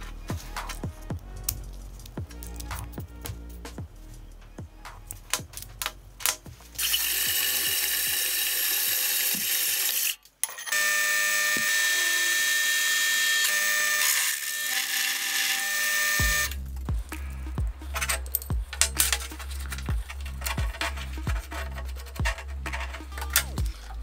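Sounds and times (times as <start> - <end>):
drill press cutting metal: 6.8 - 16.6.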